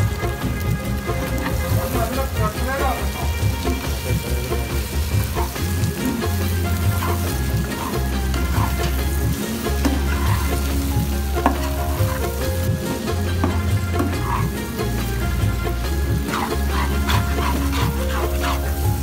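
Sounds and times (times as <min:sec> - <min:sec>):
meat sizzling in oil: 0:00.0 - 0:19.0
metal spatula scraping pan: 0:05.2 - 0:19.0.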